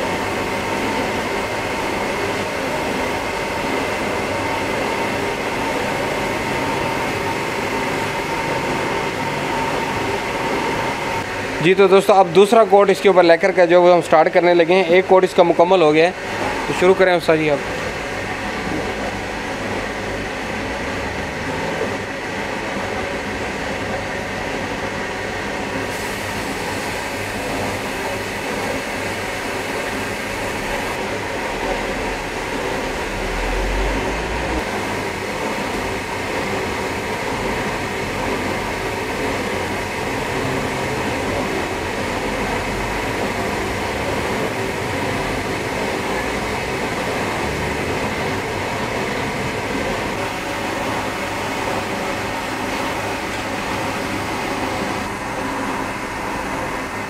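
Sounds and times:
spray gun hissing: 25.9 - 30.9.

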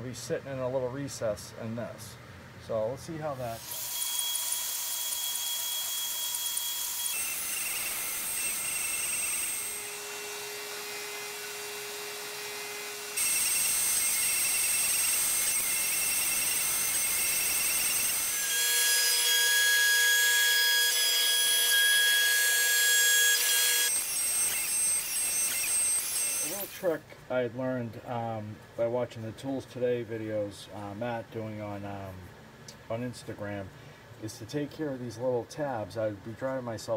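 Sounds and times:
shop vacuum hissing: 3.0 - 27.0
router spindle whining: 3.6 - 26.8.

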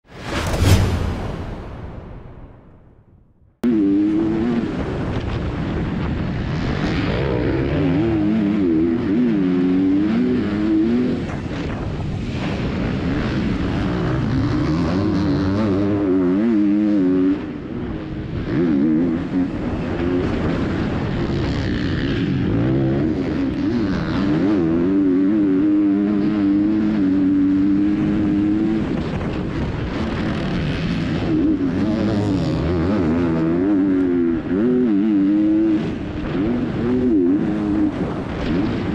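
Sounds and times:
motocross bike engine revving: 7.1 - 11.3, 21.7 - 29.0, 29.9 - 38.9.

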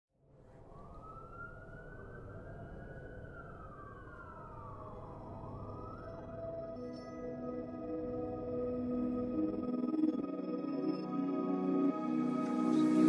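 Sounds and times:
siren wailing: 0.7 - 13.0
music tones: 6.3 - 13.0.

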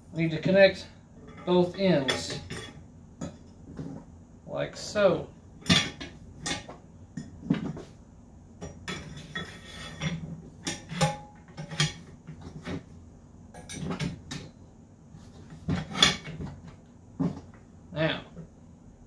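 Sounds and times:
metal scrape: 9.0 - 12.7.

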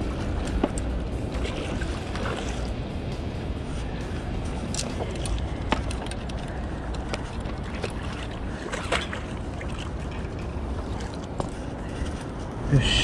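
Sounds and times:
steady low rumble: 0.0 - 13.0
fish splashing at water surface: 0.6 - 2.8, 4.7 - 11.2.

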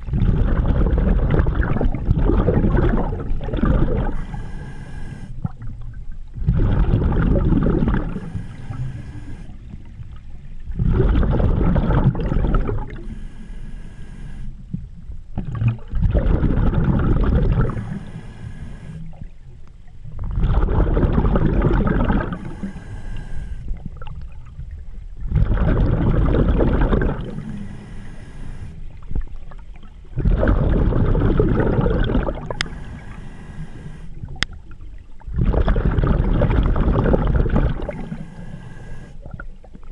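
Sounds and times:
rush of exhaled bubbles: 0.0 - 10.0, 10.6 - 13.2, 15.4 - 19.3, 20.2 - 27.8, 28.6 - 33.1, 34.1 - 39.9
regulator inhale hiss: 4.0 - 5.5, 8.0 - 9.8, 12.8 - 14.6, 17.6 - 19.2, 22.0 - 23.7, 27.2 - 29.0, 32.3 - 34.2, 37.7 - 39.2.

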